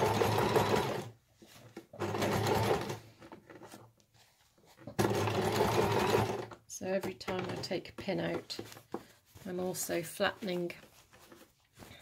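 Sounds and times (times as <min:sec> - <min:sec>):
sewing machine stitching: 0:00.0 - 0:01.2, 0:01.8 - 0:03.8, 0:04.8 - 0:08.7.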